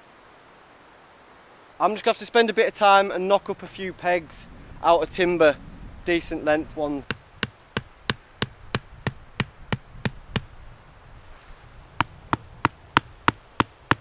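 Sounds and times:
wooden club knocking tent peg: 0:07.0 - 0:10.5, 0:12.0 - 0:14.0.

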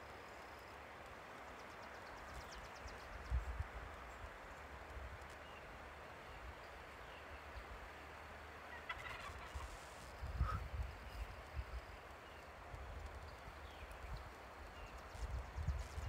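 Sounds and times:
turkey gobbling: 0:08.7 - 0:10.6.

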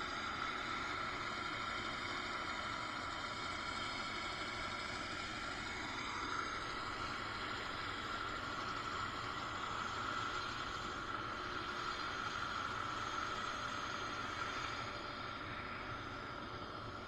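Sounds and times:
helicopter turbine whine: 0:00.0 - 0:17.0.

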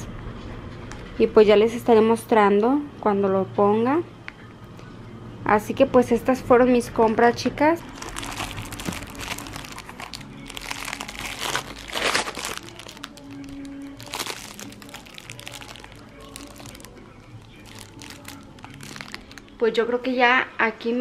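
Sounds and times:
soft background music: 0:00.0 - 0:21.0
plastic packaging crinkling: 0:07.9 - 0:19.6.

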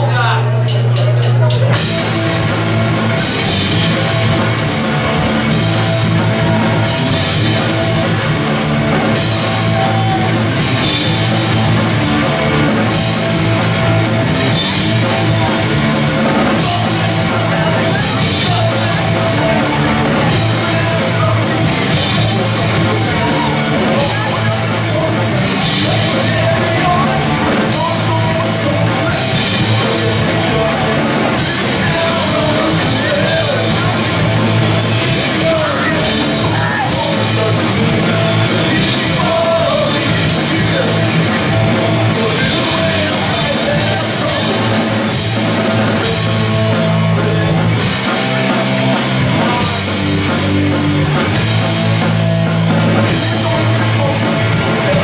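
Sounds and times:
drum kit: 0:00.0 - 0:55.0
electric guitars: 0:01.6 - 0:55.0
person singing into microphone: 0:16.4 - 0:34.4, 0:35.0 - 0:44.8.

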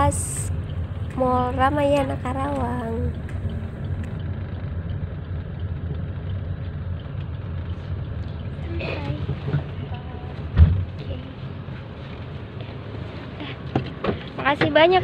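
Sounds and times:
car engine and tyres rumbling: 0:00.0 - 0:15.0
sharp thump: 0:10.5 - 0:10.9.

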